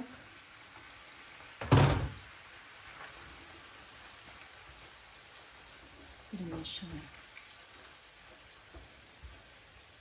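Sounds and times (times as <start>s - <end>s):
sauce sizzling in a pan: 0.0s - 10.0s
knock or splash: 1.6s - 2.2s.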